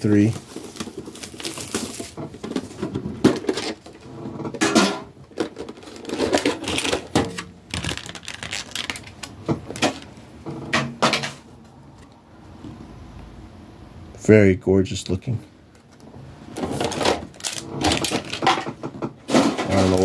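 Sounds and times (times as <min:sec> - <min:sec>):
packaging rustling: 0:00.0 - 0:04.0, 0:05.3 - 0:10.1, 0:16.6 - 0:18.8
packaging clicks and knocks: 0:04.6 - 0:10.1, 0:16.7 - 0:20.0.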